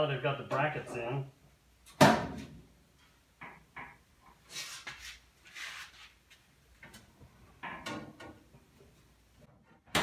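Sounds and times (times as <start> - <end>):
soft scuffs: 4.5 - 6.5.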